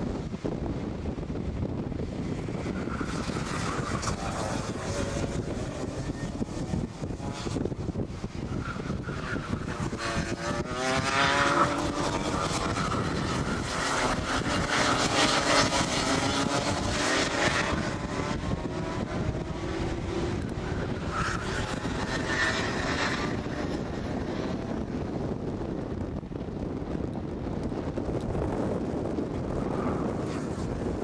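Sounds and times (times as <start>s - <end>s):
kart engines buzzing: 1.5s - 26.2s, 27.0s - 31.0s.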